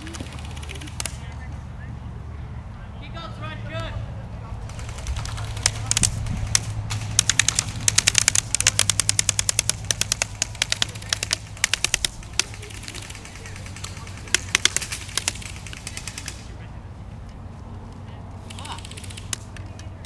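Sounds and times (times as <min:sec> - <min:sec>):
airsoft guns firing: 0:00.0 - 0:01.5, 0:04.7 - 0:16.6, 0:18.4 - 0:19.6.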